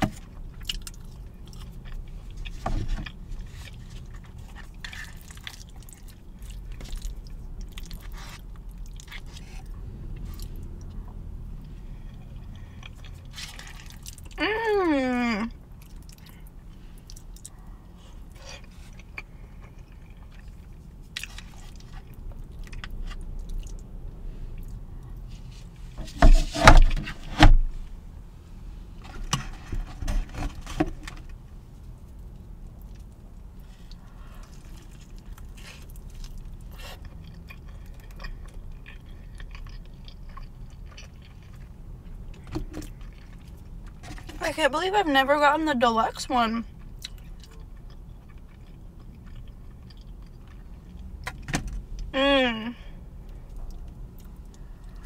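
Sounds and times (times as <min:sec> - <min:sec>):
chewing food: 0:00.1 - 0:14.4, 0:15.6 - 0:23.9, 0:31.1 - 0:44.4, 0:46.7 - 0:52.1, 0:53.2 - 0:55.0.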